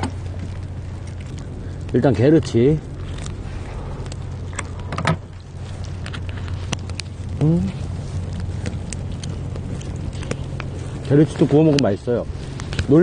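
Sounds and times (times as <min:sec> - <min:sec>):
chewing: 0:00.0 - 0:13.0
low hum: 0:00.0 - 0:13.0
person humming mm: 0:07.4 - 0:07.8.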